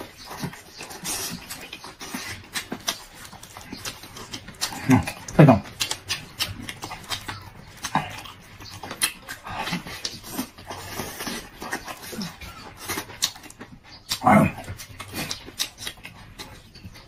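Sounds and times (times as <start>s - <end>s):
man chewing and sucking: 0.0s - 17.0s
wet lip smacks: 0.4s - 10.5s.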